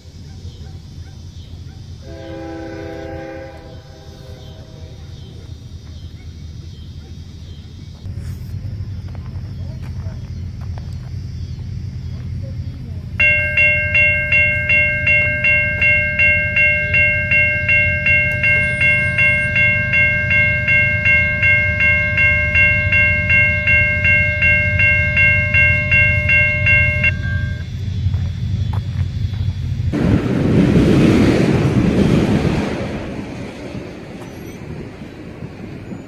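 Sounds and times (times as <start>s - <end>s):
crossing warning bell ringing: 13.1s - 30.0s.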